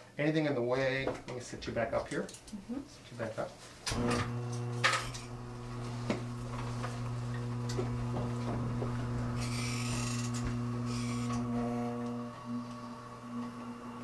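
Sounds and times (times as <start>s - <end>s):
electric chair motor humming: 3.9s - 14.0s.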